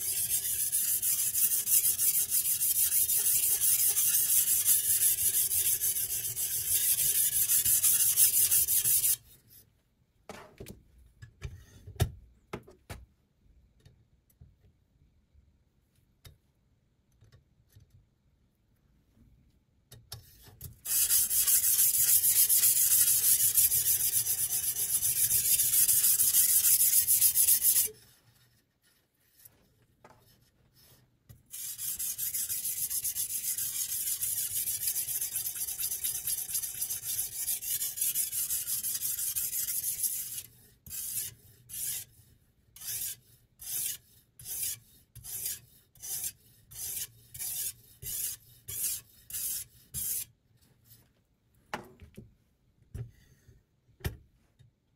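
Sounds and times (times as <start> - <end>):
sharpening stone scraping knife edge: 0.0 - 9.2, 31.5 - 42.1, 42.8 - 50.2.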